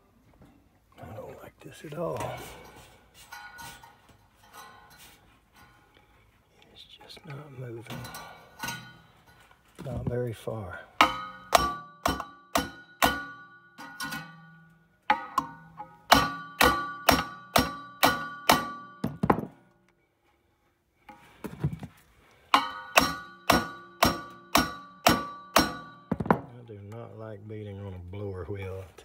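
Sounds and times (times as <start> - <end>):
hammer striking metal socket: 11.0 - 14.5, 15.1 - 19.5, 22.6 - 26.5.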